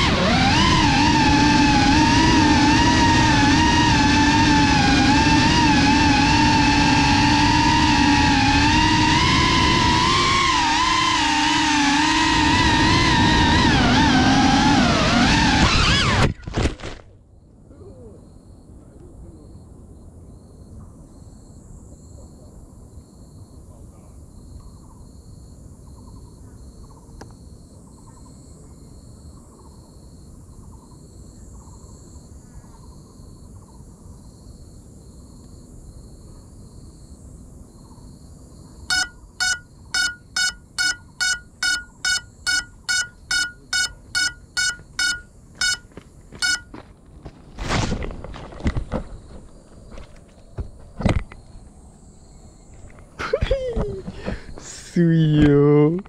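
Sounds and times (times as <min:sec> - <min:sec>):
faint chirps: 0:17.4 - 0:23.0, 0:37.8 - 0:46.6
drone buzzer beeping: 0:38.9 - 0:46.8.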